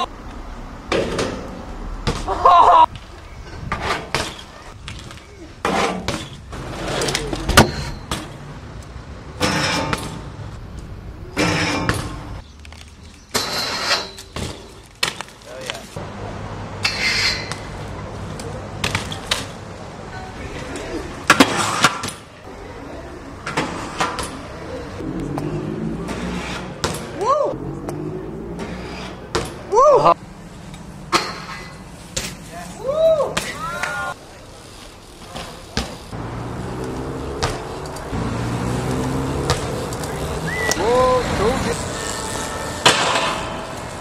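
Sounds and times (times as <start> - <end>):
tyres rolling on concrete: 0.0 - 44.0
bmx bikes clacking on landing: 0.9 - 8.5, 28.6 - 44.0.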